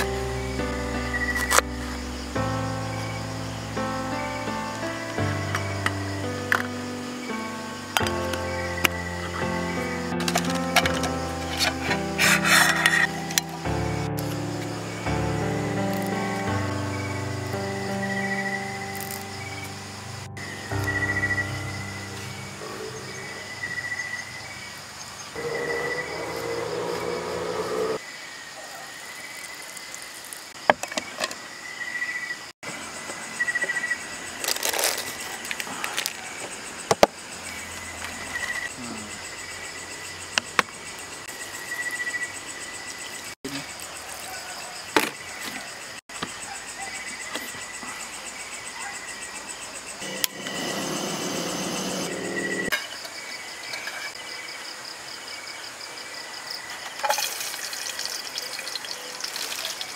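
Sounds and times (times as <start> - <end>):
crickets chirping: 0.0 - 59.9
rushing noise: 50.0 - 52.7.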